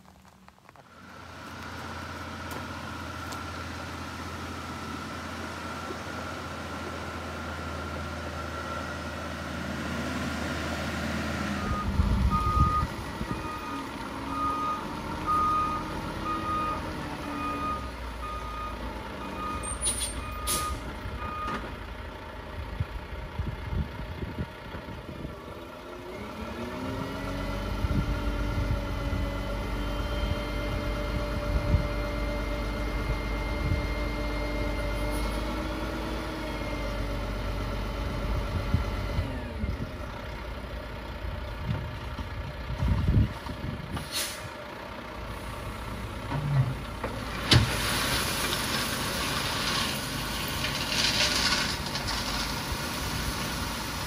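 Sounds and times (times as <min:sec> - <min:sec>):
gravel tipping: 0:00.0 - 0:03.6, 0:47.1 - 0:54.0
diesel truck engine revving: 0:00.9 - 0:54.0
truck backup alarm beeping: 0:04.5 - 0:09.6, 0:11.4 - 0:22.0, 0:28.2 - 0:35.8.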